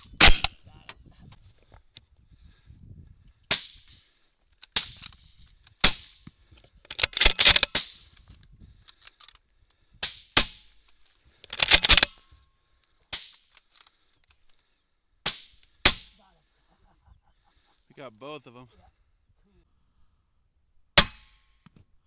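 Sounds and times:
rifle shots with echo: 0.2s - 0.5s.

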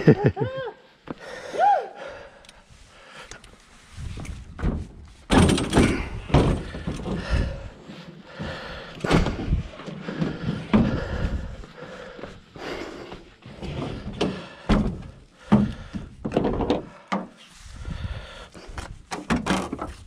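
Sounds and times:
bike knocking into truck bed: 4.6s - 7.3s.

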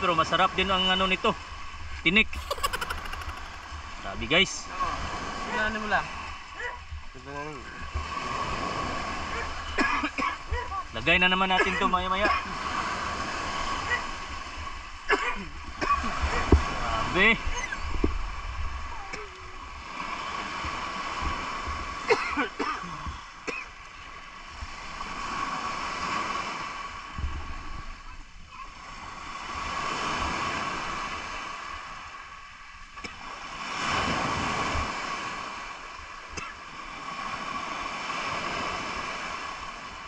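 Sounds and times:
waves on a pebble beach: 7.4s - 10.5s, 24.1s - 27.9s, 28.6s - 40.0s.

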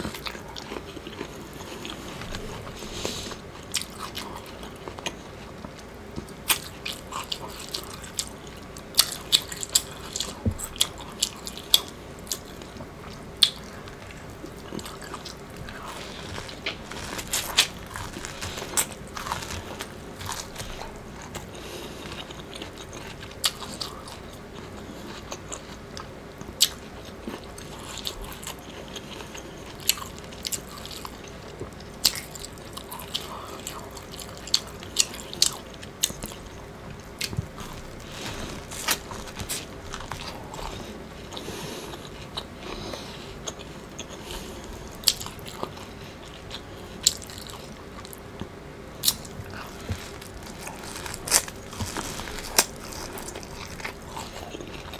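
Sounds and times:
chewing: 0.0s - 54.9s
corn cob crunching bites: 49.0s - 54.9s.

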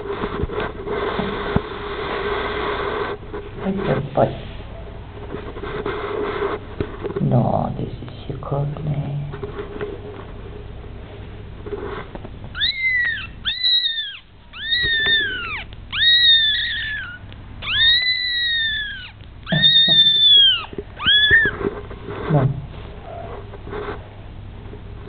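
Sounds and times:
kitten mewing: 12.5s - 23.4s.

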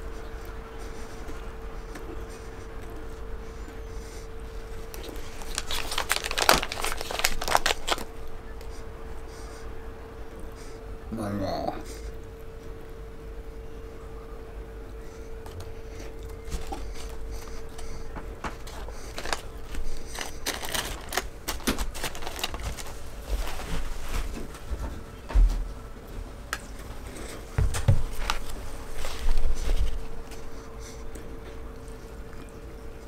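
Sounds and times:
faint steady hum: 0.0s - 33.0s
paper wrapper crinkling: 4.7s - 8.7s, 16.2s - 24.4s, 28.0s - 31.0s
mouth chewing with wet smacks: 30.6s - 33.0s.

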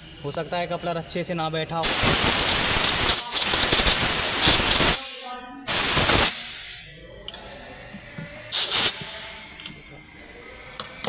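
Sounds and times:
compressed air blow gun hissing: 1.8s - 6.7s, 8.5s - 9.3s.

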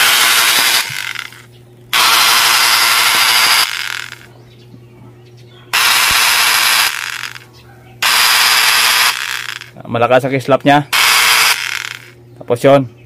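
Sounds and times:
angle grinder motor running: 0.0s - 4.3s, 5.7s - 9.8s, 10.7s - 12.2s.

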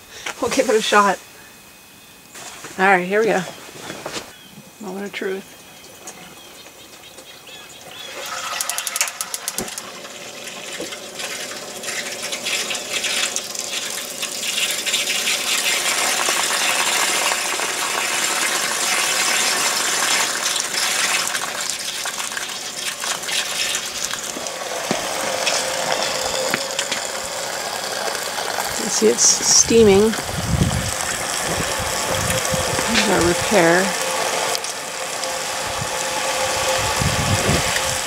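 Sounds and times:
rapid igniter clicking: 8.2s - 9.9s
water rushing: 15.7s - 38.0s.

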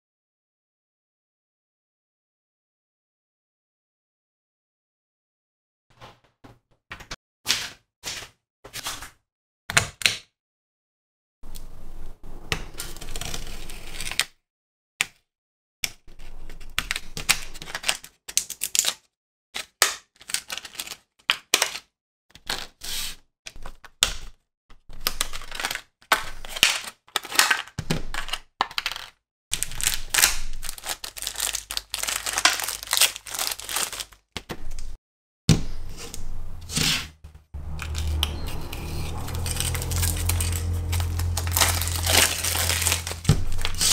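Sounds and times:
low hum: 37.6s - 43.8s.

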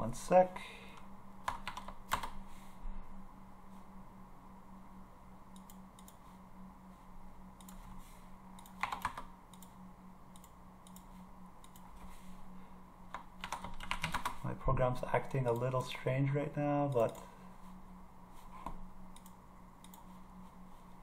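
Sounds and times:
steady low hum: 0.0s - 21.0s
keyboard and mouse clicks: 1.4s - 2.4s, 8.6s - 11.9s, 13.1s - 14.4s.

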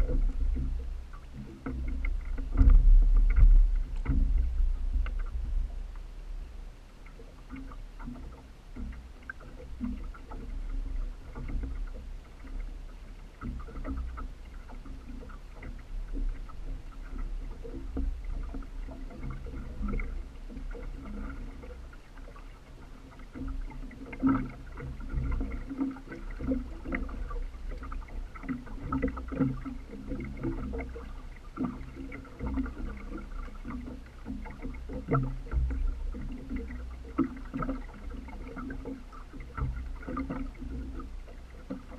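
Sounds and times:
low rumble: 0.0s - 12.9s
water splashing against boat hull: 0.0s - 41.9s.

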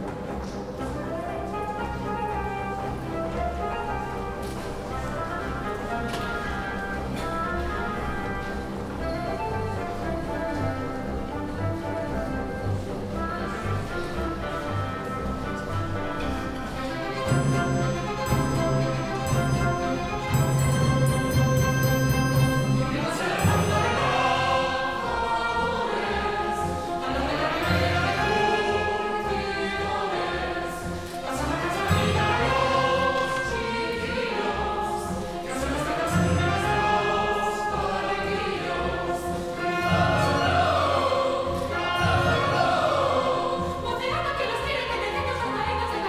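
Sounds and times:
orchestra accompanying: 0.0s - 46.0s
mixed chorus singing: 16.8s - 46.0s.

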